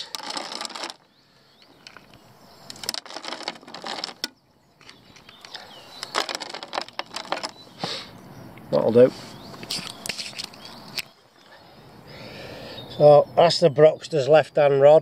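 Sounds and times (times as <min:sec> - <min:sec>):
pellets rattling into plastic hopper: 0:00.0 - 0:01.0, 0:02.8 - 0:04.3, 0:06.0 - 0:07.5.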